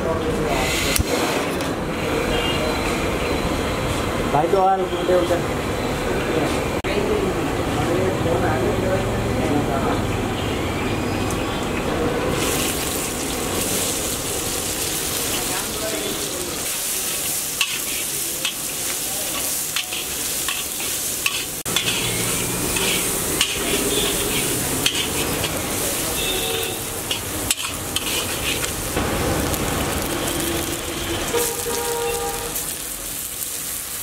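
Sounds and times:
onions sizzling in oil: 12.3s - 34.0s
metal spatula scraping wok: 16.6s - 29.0s.

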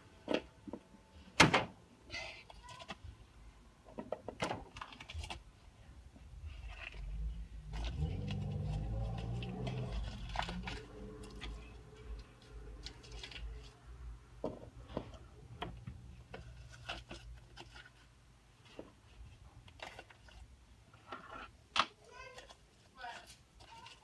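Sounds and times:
toys and packaging clicking: 2.4s - 3.1s, 3.9s - 5.5s, 7.7s - 13.8s, 15.6s - 18.1s, 19.6s - 24.0s.

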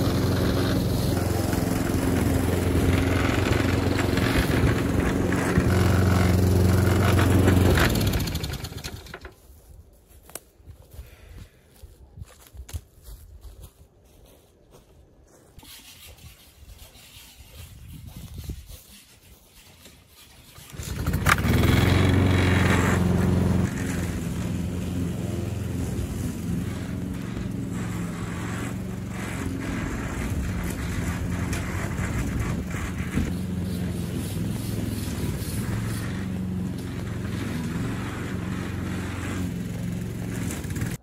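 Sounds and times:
small petrol engine running: 0.0s - 9.3s, 20.5s - 41.0s.

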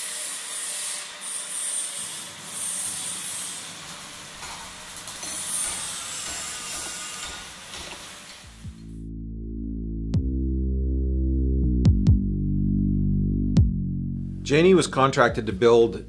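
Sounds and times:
welding sparks sizzling: 0.0s - 8.9s.

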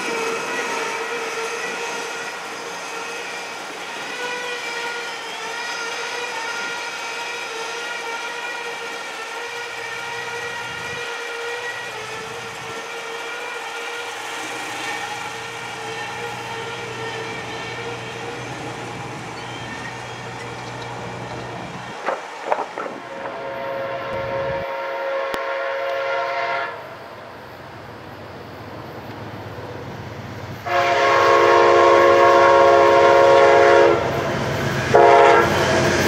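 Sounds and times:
train passing: 0.0s - 36.0s
crossing warning bell ringing: 15.3s - 22.0s.

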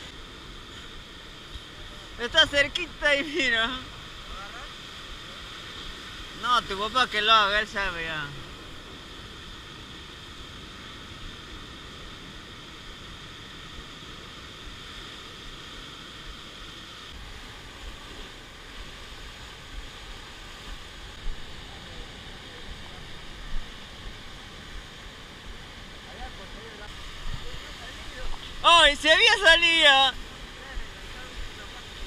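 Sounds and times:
surf breaking over rocks: 17.2s - 32.0s.

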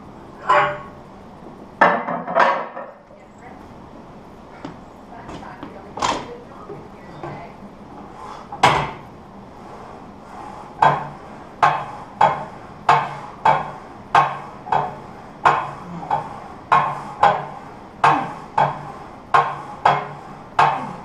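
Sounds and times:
leg press sled clanking: 0.4s - 1.0s, 8.4s - 21.0s.

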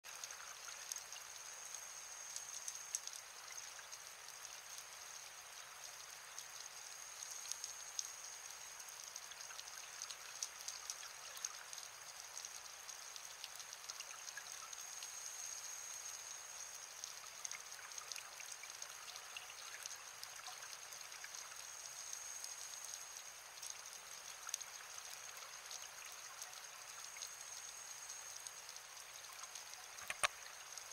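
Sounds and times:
crackle of sharp clicks: 29.5s - 30.4s.

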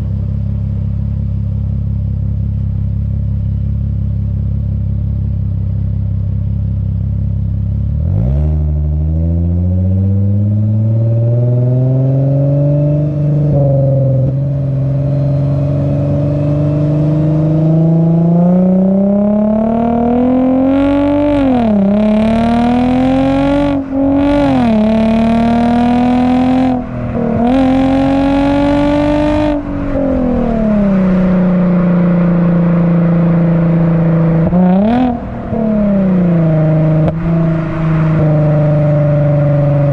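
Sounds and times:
car exhaust accelerating: 0.0s - 39.9s.

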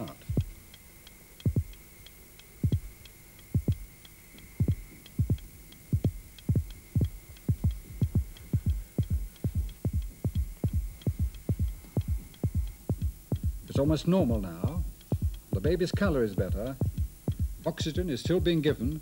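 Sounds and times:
amplified baby heartbeat: 0.0s - 19.0s.

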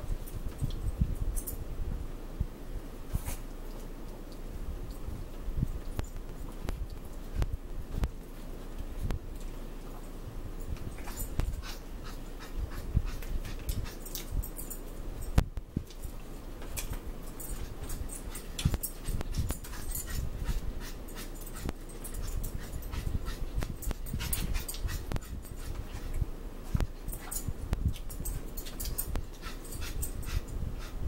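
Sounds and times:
dog panting: 10.9s - 14.8s, 17.3s - 31.0s
chewing and lip smacks: 11.0s - 14.5s.

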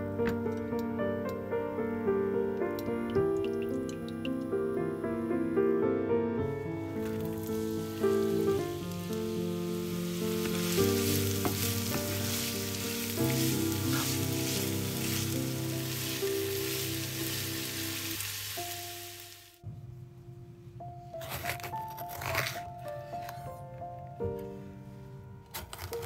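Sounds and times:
soft background music: 0.0s - 26.0s
onion sizzling in oil: 6.9s - 19.6s
spatula stirring in pan: 10.1s - 18.0s.

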